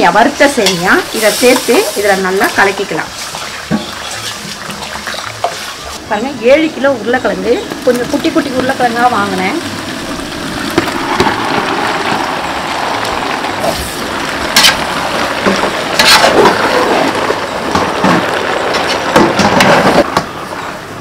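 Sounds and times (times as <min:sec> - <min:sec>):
spices sizzling in pot: 0:00.0 - 0:20.4
steel ladle scraping pot: 0:00.6 - 0:06.0, 0:13.6 - 0:17.2.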